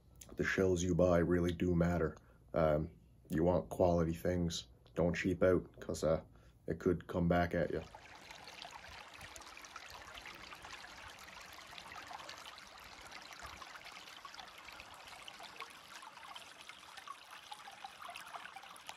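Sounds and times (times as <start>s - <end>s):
stream trickling over rocks: 7.6s - 18.9s.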